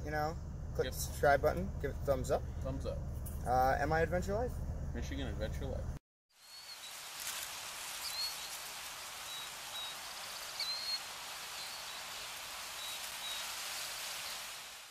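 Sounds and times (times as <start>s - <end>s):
high bird chirps: 6.4s - 7.0s, 8.0s - 14.4s
steady hiss: 6.4s - 14.9s.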